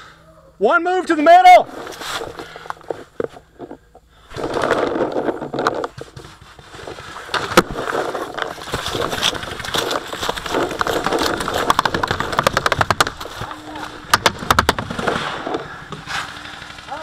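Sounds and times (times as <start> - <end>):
footsteps running through dry leaves: 8.5 - 13.8
paintball markers firing: 9.2 - 13.4, 14.1 - 15.2.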